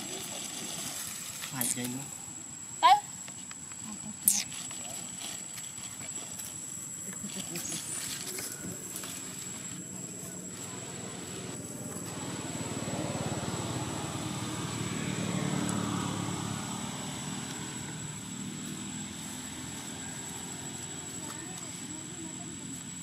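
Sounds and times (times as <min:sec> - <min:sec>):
vehicle engine droning: 0:06.7 - 0:23.0.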